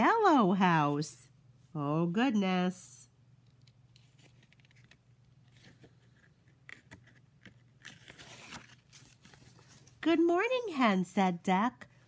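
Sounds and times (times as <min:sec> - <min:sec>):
paper page rustling: 0:04.0 - 0:10.0.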